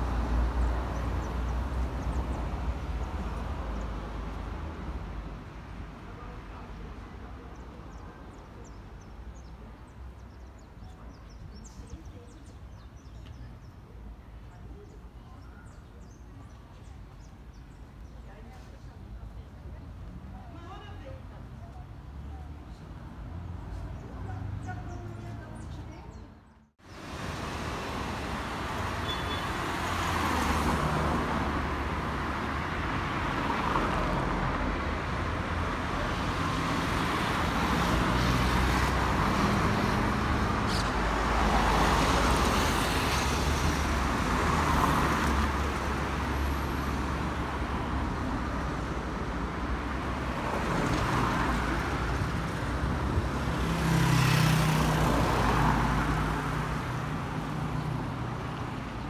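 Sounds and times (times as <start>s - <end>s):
cars passing: 0.0s - 8.0s, 22.0s - 59.0s.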